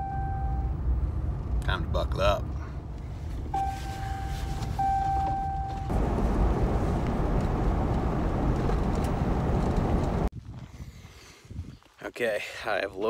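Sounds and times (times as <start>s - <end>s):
tyres on gravel road: 0.8s - 10.6s.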